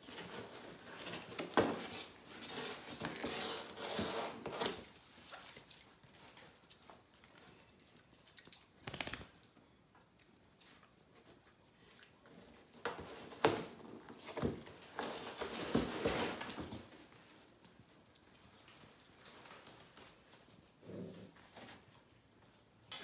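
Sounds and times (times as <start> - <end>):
animals scuffling: 10.5 - 22.7.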